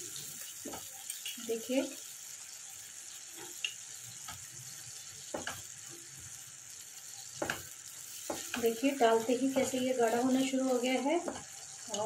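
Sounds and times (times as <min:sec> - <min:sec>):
sauce simmering in a pan: 0:00.0 - 0:12.0
spoon scraping a pan: 0:06.9 - 0:11.8.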